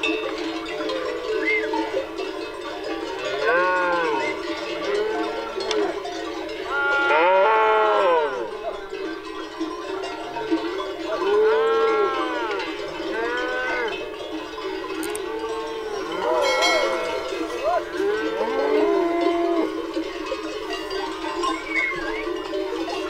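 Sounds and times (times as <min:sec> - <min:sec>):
livestock bells ringing: 0:00.0 - 0:23.0
cattle mooing: 0:03.4 - 0:05.8, 0:06.7 - 0:08.5, 0:11.2 - 0:14.0, 0:15.0 - 0:19.8.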